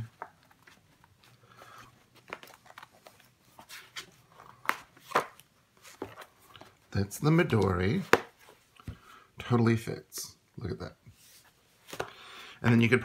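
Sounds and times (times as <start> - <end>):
rubbing and rustling: 0.0 - 7.0.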